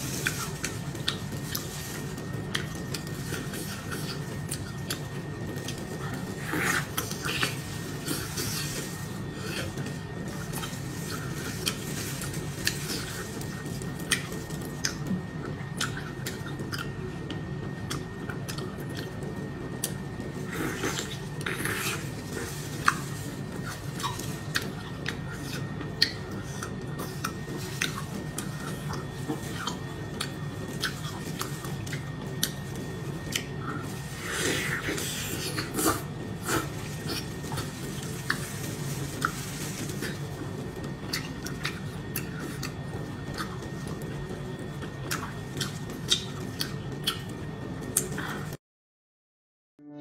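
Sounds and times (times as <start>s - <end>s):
plastic gloves handling food: 0.0s - 15.3s, 20.0s - 25.7s, 27.0s - 44.4s
wet chewing: 0.0s - 48.5s
steady low hum: 0.0s - 48.6s.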